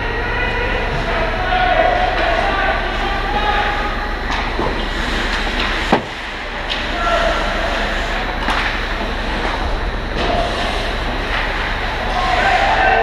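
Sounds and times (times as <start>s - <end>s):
hockey sticks clacking: 4.3s - 7.5s, 8.4s - 12.6s.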